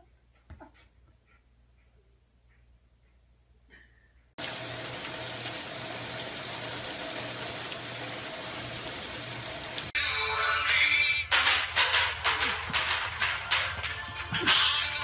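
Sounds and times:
rain on a wooden deck: 4.4 - 10.0.

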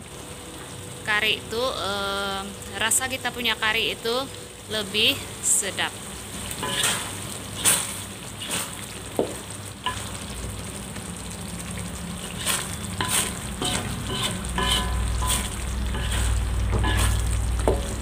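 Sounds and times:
gravy sizzling in a wok: 0.0 - 18.0
spatula scraping a pan: 6.4 - 9.0, 9.9 - 10.2, 12.2 - 18.0.

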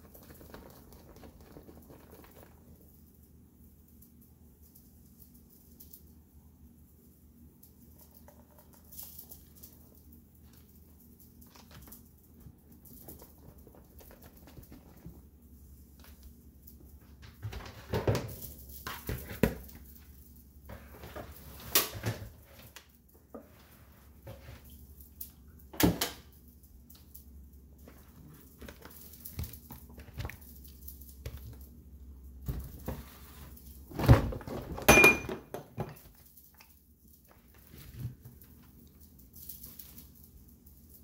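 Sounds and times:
faint low hum: 0.0 - 41.0
objects knocking and clattering: 33.9 - 36.3.

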